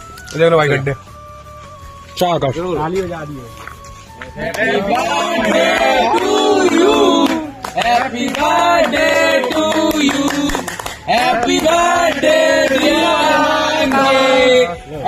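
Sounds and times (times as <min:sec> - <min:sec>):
music: 0:00.0 - 0:15.0.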